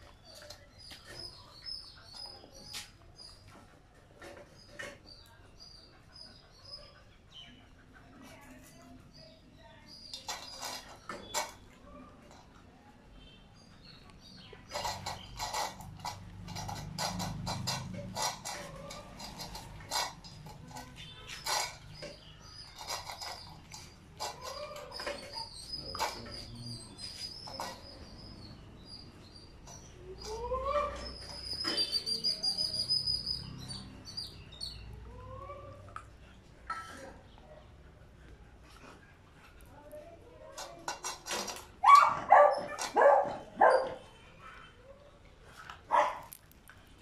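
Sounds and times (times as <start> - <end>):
puppy crunching kibble: 14.6 - 26.5, 45.4 - 47.0.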